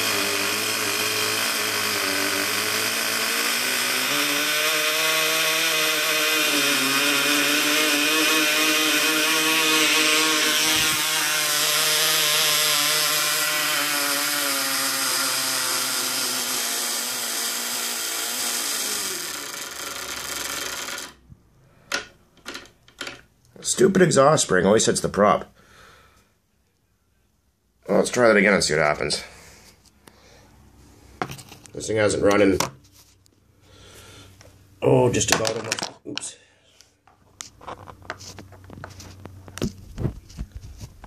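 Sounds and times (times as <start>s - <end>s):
model engine buzzing drone: 0.0s - 21.2s.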